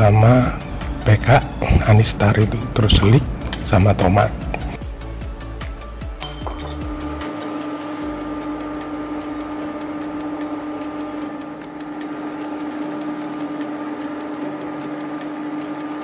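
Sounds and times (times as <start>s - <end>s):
induction hob humming: 0.0s - 16.0s
broth simmering crackle: 7.3s - 16.0s.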